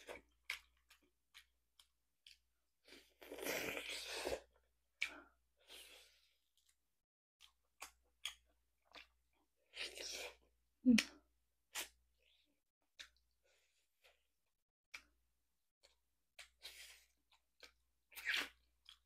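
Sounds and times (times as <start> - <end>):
chewing and wet mouth clicks: 0.1 - 2.4, 7.4 - 9.4, 12.9 - 13.3, 14.9 - 15.2, 15.8 - 19.0.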